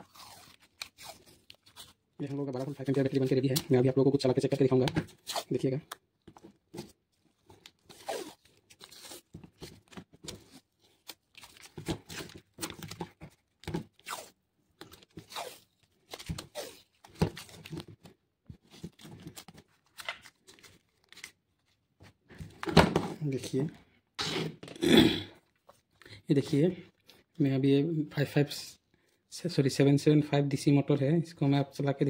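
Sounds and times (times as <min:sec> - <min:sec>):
masking tape ripping: 0:07.9 - 0:09.3, 0:15.2 - 0:17.6.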